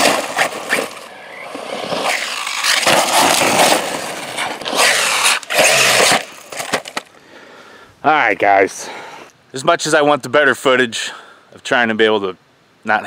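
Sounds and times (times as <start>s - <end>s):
tires churning on gravel: 0.0s - 7.0s.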